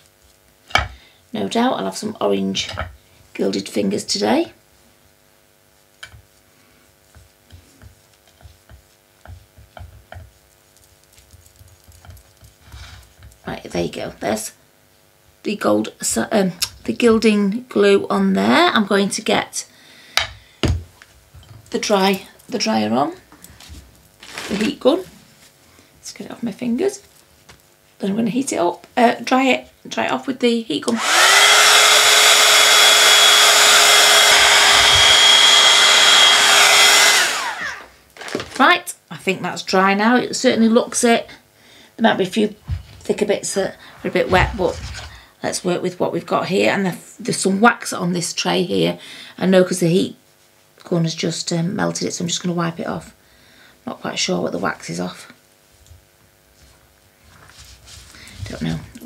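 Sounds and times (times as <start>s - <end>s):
heat gun running with motor whine: 30.9s - 38.6s.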